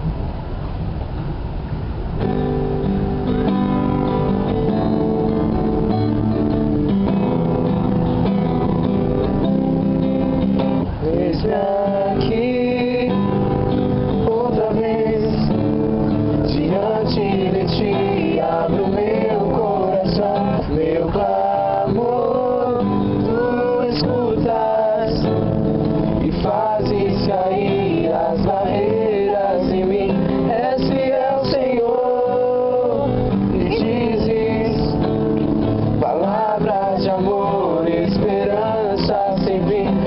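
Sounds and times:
acoustic guitar strumming: 2.1 - 40.0
group of voices singing: 10.8 - 40.0.

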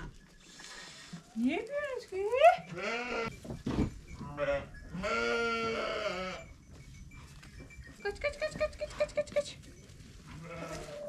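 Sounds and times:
sheep bleating: 2.6 - 3.4, 4.2 - 6.4, 10.3 - 11.0.

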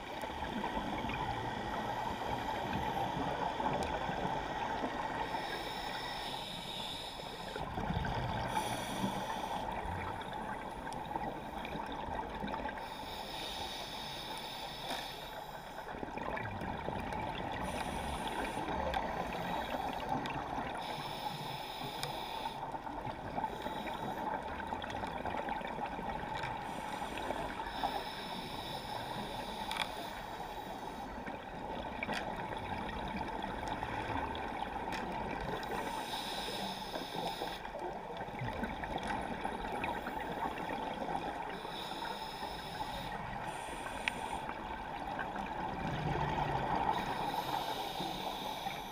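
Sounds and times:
muffled underwater wash: 0.0 - 48.9
scuba regulator breathing: 0.3 - 11.8, 12.6 - 16.0, 17.5 - 24.6, 26.6 - 31.4, 35.5 - 37.9, 38.6 - 44.7, 46.3 - 48.9
exhaled bubbles gurgling: 6.9 - 12.9, 37.2 - 48.8.

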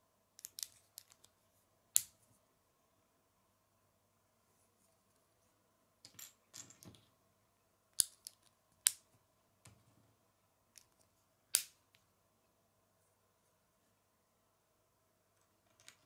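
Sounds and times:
plastic bricks snapping together: 8.0 - 9.0.

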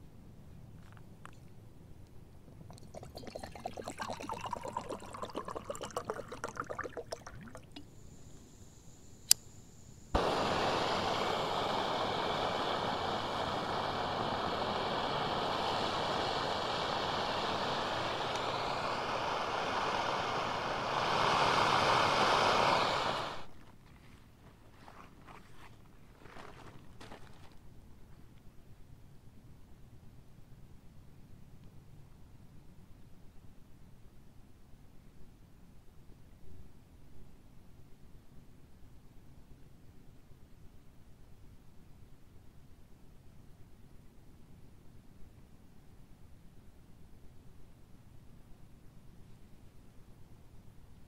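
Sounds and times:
water pouring into mug: 2.6 - 7.9
gas stove hissing: 7.8 - 23.5.

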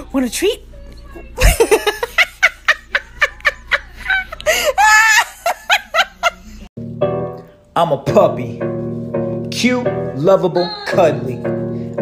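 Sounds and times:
person laughing: 1.4 - 6.6.

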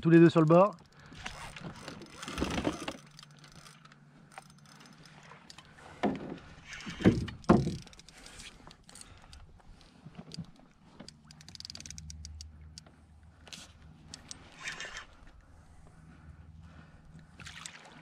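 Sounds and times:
knocks and bumps on boat: 6.0 - 7.9.

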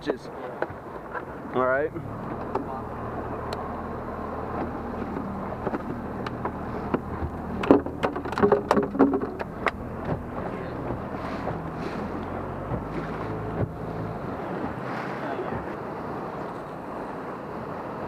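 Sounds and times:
water noise: 0.0 - 18.0
steady low hum: 0.8 - 18.0.

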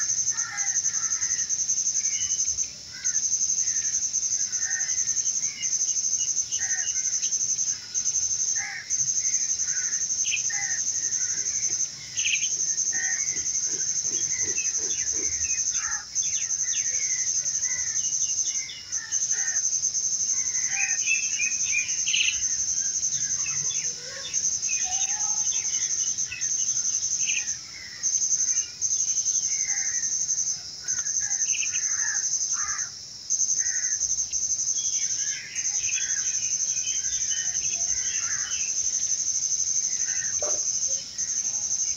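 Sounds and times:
high-pitched insect drone: 0.0 - 41.9
birds chirping: 8.8 - 19.6, 20.3 - 30.0, 34.3 - 39.1.

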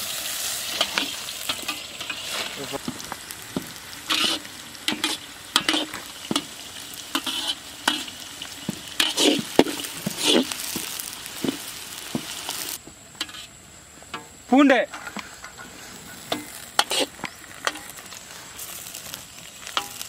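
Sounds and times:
onions sizzling in hot oil: 0.0 - 14.5, 15.2 - 20.0
metal ladle scraping pan: 0.6 - 2.6, 4.0 - 6.5, 7.1 - 10.9, 13.2 - 13.5, 14.9 - 17.9.

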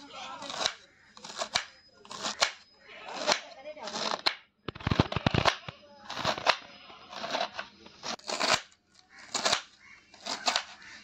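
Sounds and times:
knife slicing cabbage: 0.2 - 5.5, 6.1 - 10.9
blade tapping wooden board: 0.4 - 6.6, 9.3 - 10.8.

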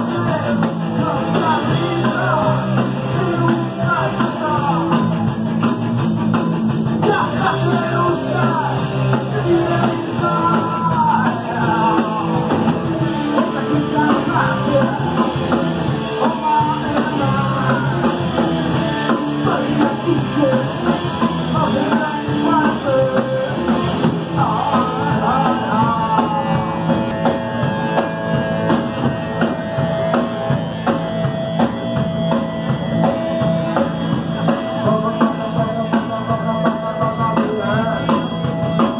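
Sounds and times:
person singing: 0.0 - 5.4, 7.0 - 27.2, 33.7 - 38.9
punk rock band playing live: 0.0 - 38.9.

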